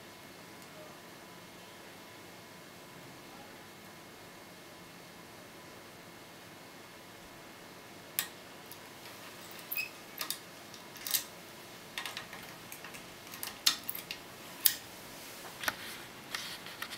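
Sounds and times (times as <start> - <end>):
faint steady hiss: 0.0 - 16.9
lock pick clicking in lock: 11.0 - 11.3.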